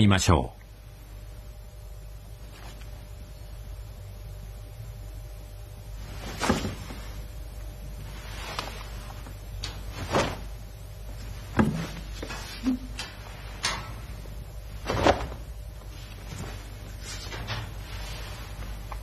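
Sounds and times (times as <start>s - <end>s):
bare feet striking mat: 11.2s - 12.4s.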